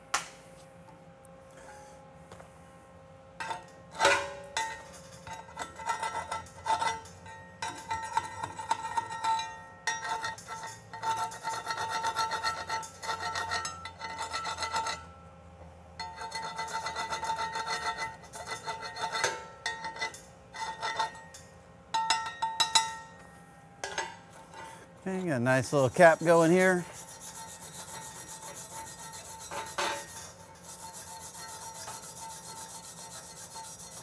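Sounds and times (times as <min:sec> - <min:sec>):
welding arc crackling and hissing: 0:25.0 - 0:29.4.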